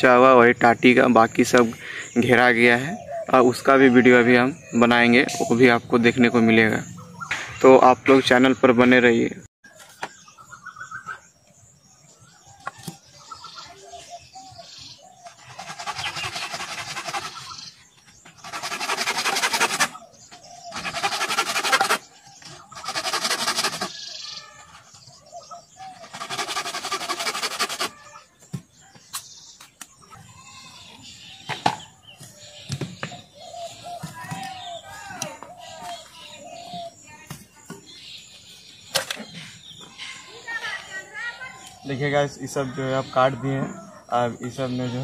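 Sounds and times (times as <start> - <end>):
hand saw rasping through bamboo: 15.2 - 24.1, 25.9 - 28.1.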